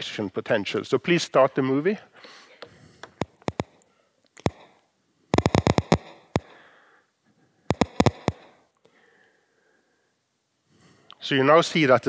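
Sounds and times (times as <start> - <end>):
neuron spike clicks: 3.2 - 3.8, 4.4 - 4.8, 5.4 - 6.6, 7.7 - 8.5.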